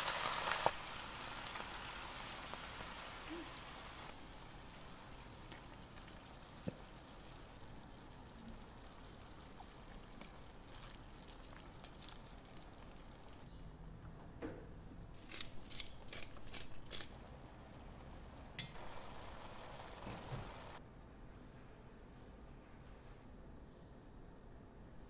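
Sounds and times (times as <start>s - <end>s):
sauce sizzling in a frying pan: 0.0s - 13.4s, 18.6s - 20.8s
sauce bubbling: 0.0s - 13.5s, 16.8s - 20.8s.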